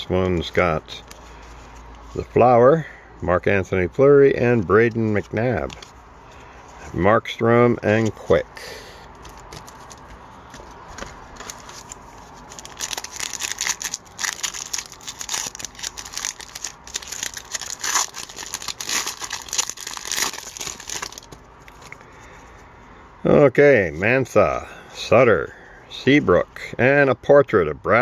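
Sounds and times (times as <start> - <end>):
foil wrapper crinkling and tearing: 11.3 - 22.0.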